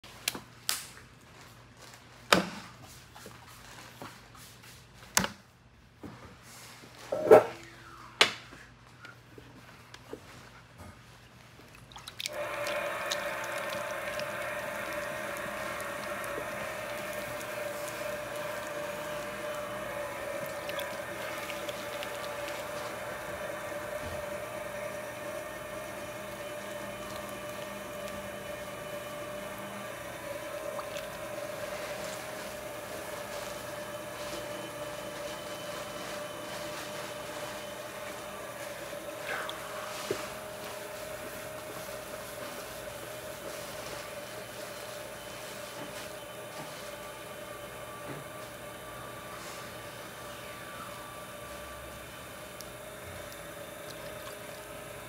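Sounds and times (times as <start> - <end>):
wet clay squishing: 11.4 - 46.1, 52.6 - 55.0
pottery wheel whining: 12.3 - 55.0.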